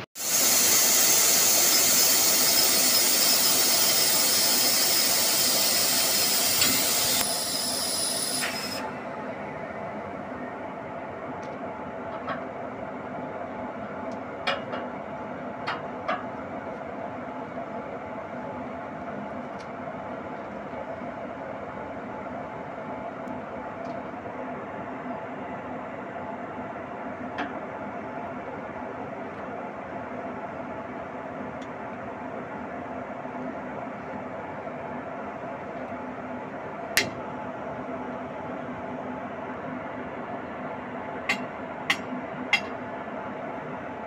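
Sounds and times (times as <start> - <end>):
loud steady hiss: 0.2 - 8.9.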